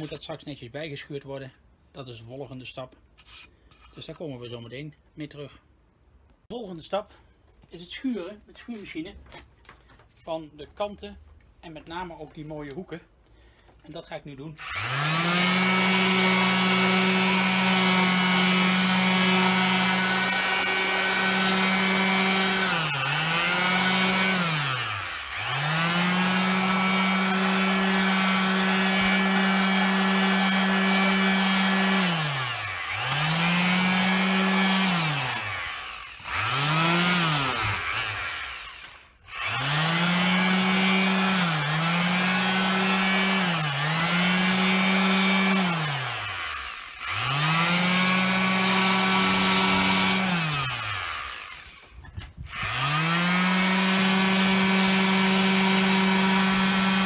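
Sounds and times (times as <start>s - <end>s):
orbital sander sanding wood: 14.6s - 57.0s.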